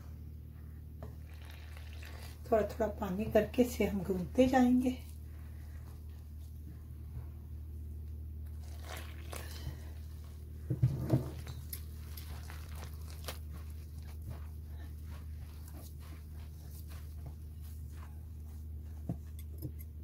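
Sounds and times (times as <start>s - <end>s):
steady low hum: 0.0s - 20.0s
dough rustling and squishing: 0.5s - 20.0s
water pouring: 1.2s - 2.5s, 8.5s - 9.8s.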